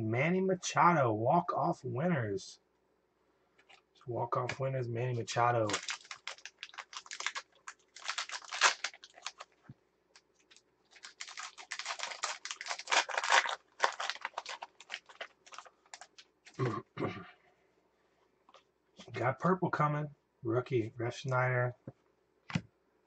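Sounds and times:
foil wrapper crinkling and tearing: 0:05.6 - 0:09.6, 0:10.2 - 0:16.7.

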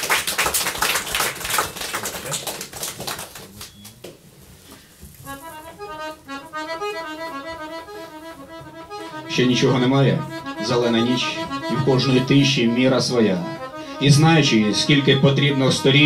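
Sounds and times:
small audience clapping: 0:00.0 - 0:04.2
piano accordion playing held notes: 0:05.2 - 0:16.0.

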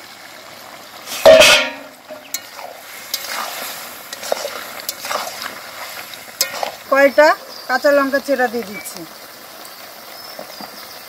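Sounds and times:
meat sizzling in pan: 0:00.9 - 0:11.0
metal spatula scraping pan: 0:01.1 - 0:06.9
loud metal clank: 0:01.2 - 0:02.4.

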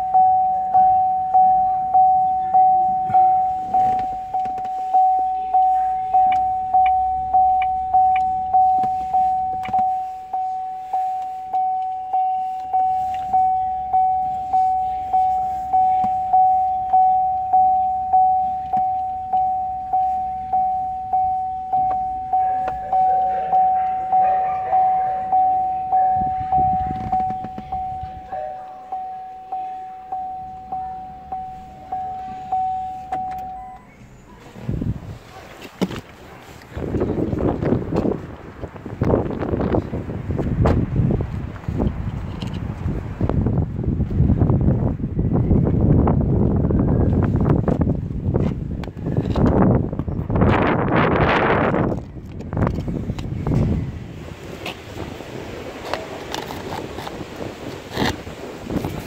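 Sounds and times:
car warning chime dinging: 0:00.0 - 0:36.6.

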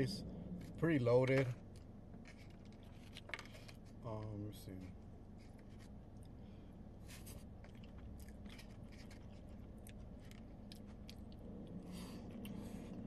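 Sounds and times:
low steady hum: 0:00.0 - 0:13.0
chewing wet food: 0:07.2 - 0:13.0.

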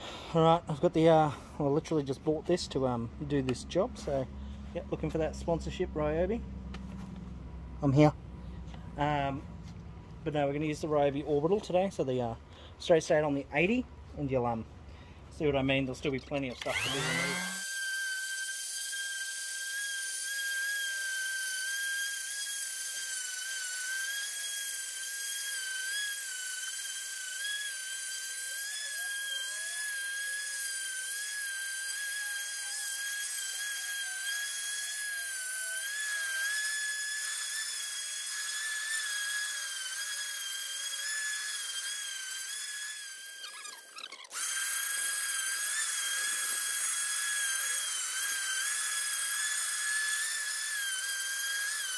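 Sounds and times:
orbital sander whining on wood: 0:15.9 - 0:51.9.

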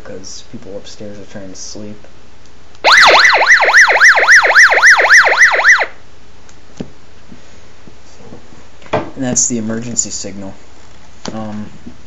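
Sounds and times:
radio alert tone warbling: 0:02.9 - 0:05.9.

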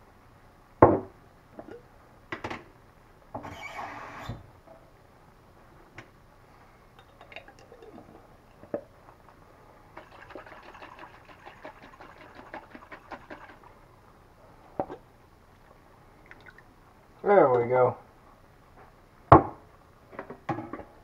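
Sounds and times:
liquid sloshing in glass jar: 0:07.0 - 0:09.4, 0:10.0 - 0:13.7.

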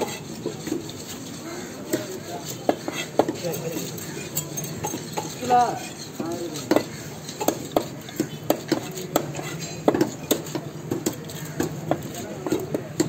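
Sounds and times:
knife chopping on block: 0:06.2 - 0:13.0.

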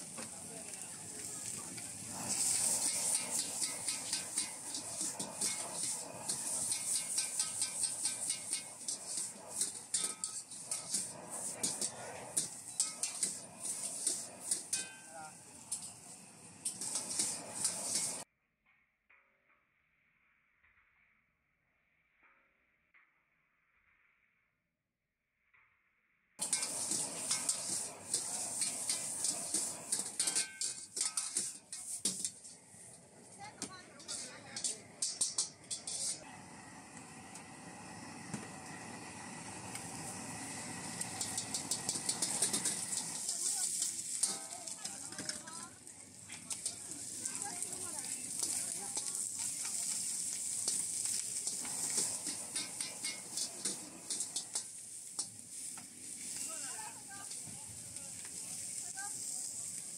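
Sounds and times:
food frying in a wok: 0:00.0 - 0:18.3, 0:26.4 - 0:59.9
metal utensils clattering on pan: 0:02.2 - 0:16.0, 0:16.6 - 0:18.2, 0:26.4 - 0:32.6, 0:33.4 - 0:36.2, 0:40.5 - 0:45.7, 0:46.3 - 0:57.6.

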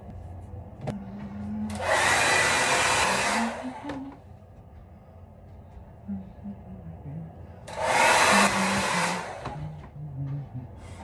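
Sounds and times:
hair dryer blowing: 0:01.7 - 0:04.2, 0:07.7 - 0:09.8.

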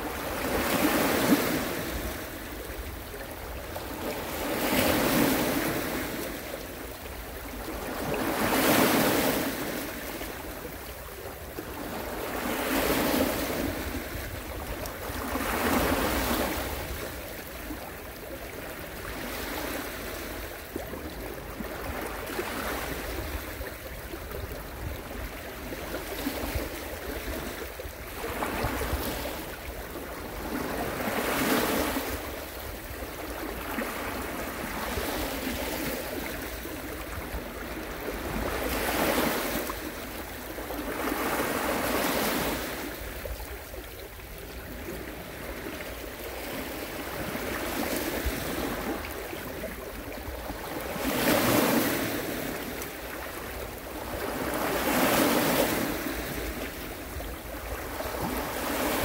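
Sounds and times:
ocean waves breaking: 0:00.0 - 0:10.9, 0:44.7 - 0:59.0.

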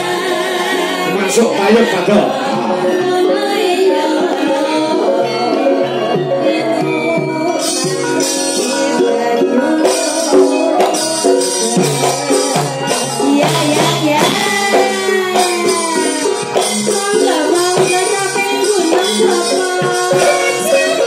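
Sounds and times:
gamelan ensemble playing: 0:00.0 - 0:21.0
woman singing: 0:00.0 - 0:21.0
drumming: 0:06.0 - 0:21.0.

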